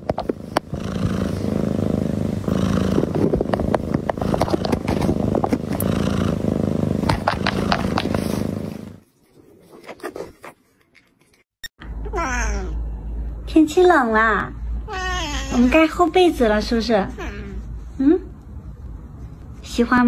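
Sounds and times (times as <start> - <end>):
cat purring loudly: 0.0 - 9.0.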